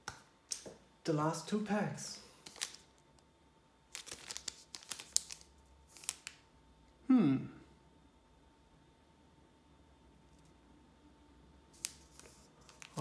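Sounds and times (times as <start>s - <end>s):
foil wrappers crinkling: 2.4s - 3.0s, 3.9s - 6.4s, 11.8s - 13.0s
person humming: 7.0s - 7.7s.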